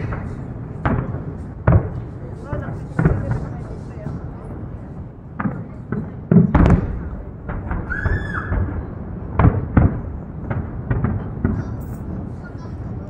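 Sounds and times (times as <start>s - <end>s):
fireworks banging: 0.0s - 13.0s.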